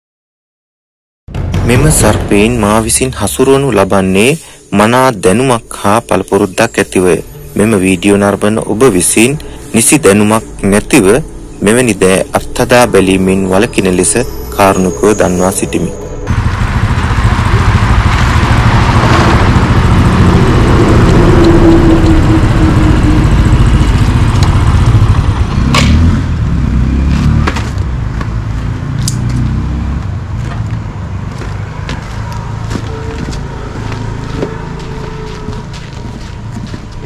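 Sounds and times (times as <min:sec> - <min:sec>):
motorcycle engine running: 0:16.3 - 0:37.0.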